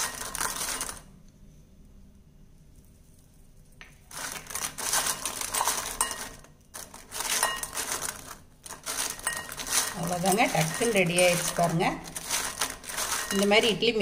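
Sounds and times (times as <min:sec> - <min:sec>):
fried snacks scraping against a bowl: 0:00.0 - 0:01.1, 0:04.1 - 0:14.0.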